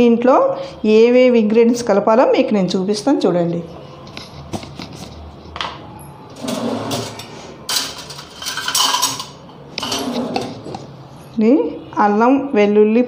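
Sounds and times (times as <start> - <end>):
kitchen utensils clattering: 6.3 - 10.9.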